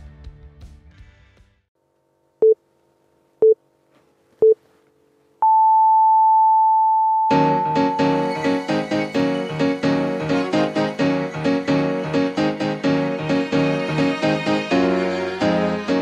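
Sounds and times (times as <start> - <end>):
music: 0.0 - 1.7, 7.3 - 16.0
short beeps: 5.4 - 8.2
long higher beep: 5.4 - 8.3
keyboard music: 7.2 - 16.0.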